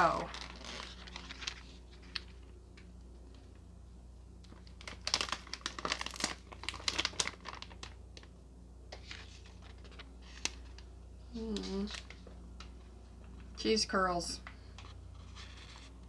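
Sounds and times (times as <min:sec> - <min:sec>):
plastic bags crinkling: 0:00.0 - 0:02.6, 0:04.4 - 0:13.5.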